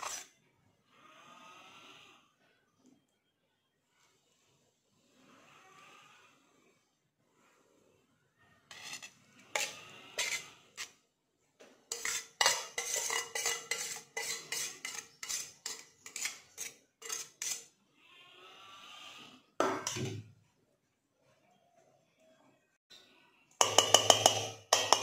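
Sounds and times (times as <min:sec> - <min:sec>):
spoon scraping steel plate: 0:00.0 - 0:00.4, 0:08.7 - 0:11.0, 0:11.9 - 0:17.8, 0:23.6 - 0:25.0.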